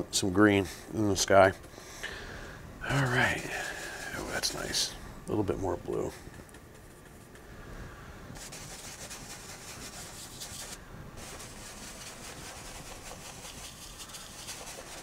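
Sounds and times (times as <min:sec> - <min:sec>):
paintbrush scrubbing on canvas: 0:08.4 - 0:15.0.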